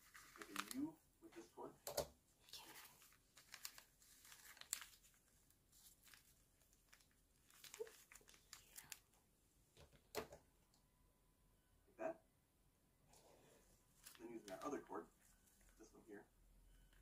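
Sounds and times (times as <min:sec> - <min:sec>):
paper package rustling: 0:00.0 - 0:00.9, 0:02.6 - 0:09.0, 0:14.0 - 0:14.7.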